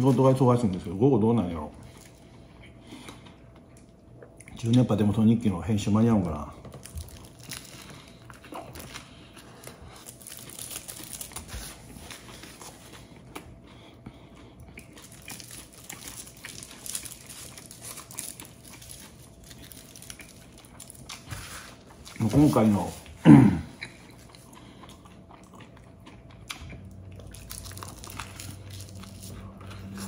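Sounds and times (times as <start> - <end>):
chewing: 1.8 - 4.9, 6.6 - 30.0
aluminium foil crinkling: 6.7 - 12.9, 15.0 - 23.0, 27.2 - 30.0.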